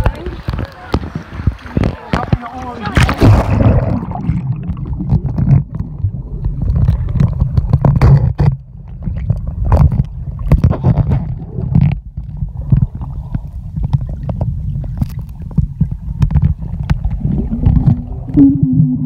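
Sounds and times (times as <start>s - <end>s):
splash into water: 0.0s - 5.6s
muffled underwater rumble: 0.0s - 19.0s
underwater clicks and knocks: 0.0s - 19.0s.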